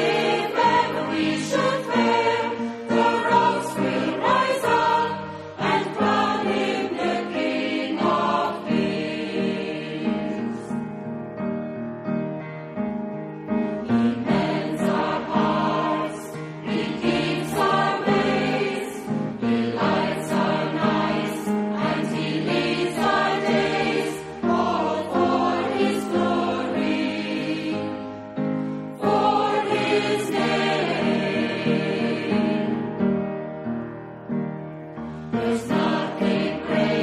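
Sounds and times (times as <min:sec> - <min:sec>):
choir singing a hymn: 0:00.0 - 0:11.1, 0:13.7 - 0:33.3, 0:35.0 - 0:37.0
musical accompaniment: 0:00.0 - 0:37.0.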